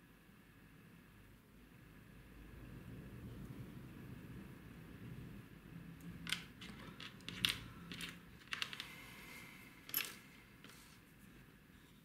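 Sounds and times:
small parts and tools clicking: 0:06.2 - 0:09.0, 0:09.8 - 0:10.8.

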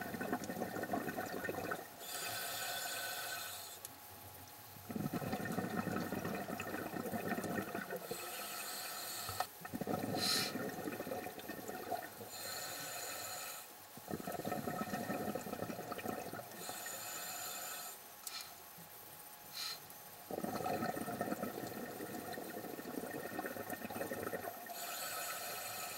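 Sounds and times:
bubbling exhalations: 0:00.0 - 0:02.1, 0:04.9 - 0:08.2, 0:09.5 - 0:12.4, 0:14.0 - 0:16.8, 0:20.3 - 0:25.6
regulator inhalation hiss: 0:02.0 - 0:03.8, 0:08.0 - 0:10.6, 0:12.2 - 0:13.7, 0:16.6 - 0:18.6, 0:19.5 - 0:19.9, 0:24.6 - 0:25.9.

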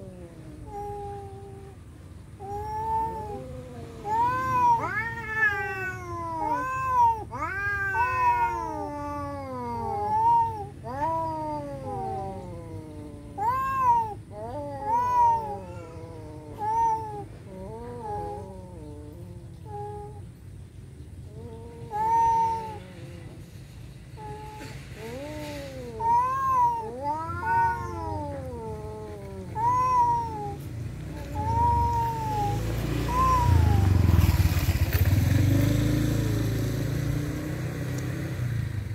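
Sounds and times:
cats yowling: 0:00.0 - 0:20.3, 0:21.1 - 0:34.7.

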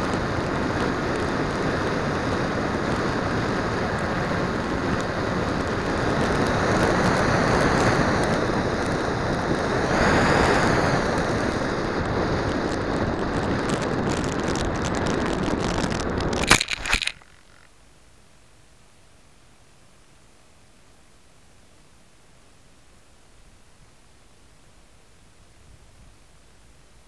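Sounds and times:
rushing wind: 0:00.0 - 0:17.6.

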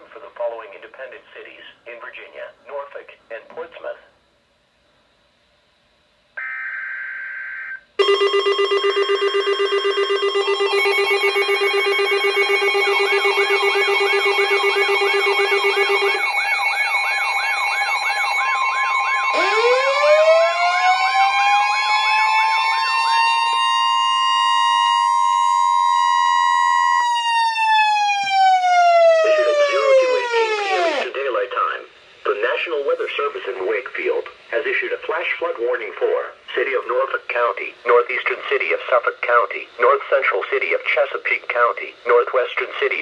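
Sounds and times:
alert alarm tones and beeps: 0:06.4 - 0:20.4
siren tone winding: 0:06.4 - 0:31.1.

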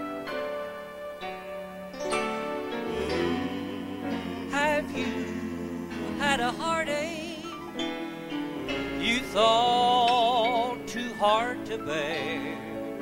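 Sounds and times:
piano accompaniment: 0:00.0 - 0:13.0
man singing with vibrato: 0:02.8 - 0:13.0.

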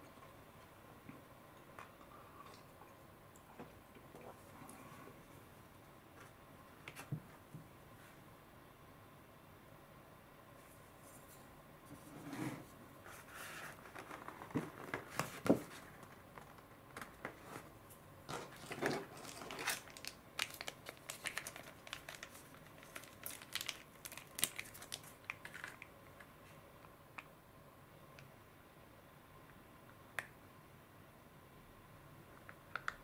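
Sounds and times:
foil pouch crinkling: 0:18.5 - 0:25.9.

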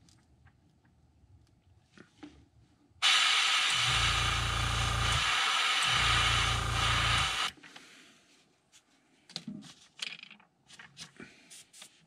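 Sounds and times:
airbrush spraying hiss: 0:03.0 - 0:07.5
low hum: 0:03.1 - 0:07.5.

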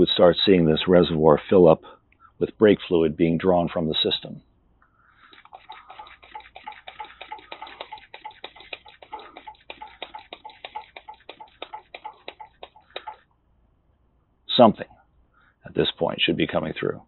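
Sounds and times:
hand pump clicking: 0:05.2 - 0:13.2.

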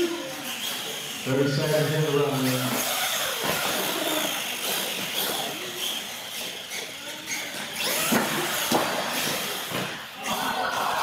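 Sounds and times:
toy trucks whirring: 0:00.0 - 0:11.0
thump: 0:08.1 - 0:09.0.

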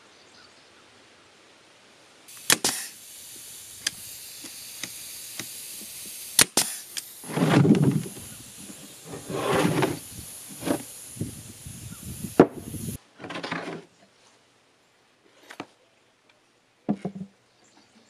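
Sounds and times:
steady hiss: 0:00.0 - 0:13.0
wooden box knocking and scraping: 0:16.9 - 0:17.3.

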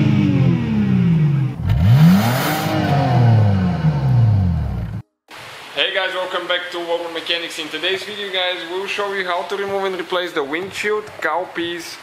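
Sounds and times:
car engine revving: 0:00.0 - 0:05.0.

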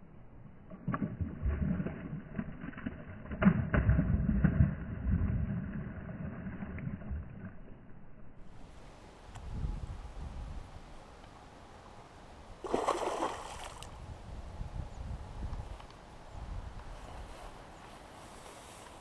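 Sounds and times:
fish splashing at water surface: 0:12.6 - 0:13.9.

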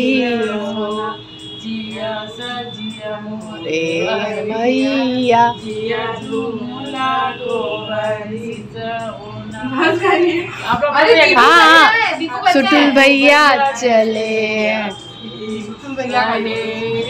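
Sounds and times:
women singing a folk song: 0:00.0 - 0:17.0.

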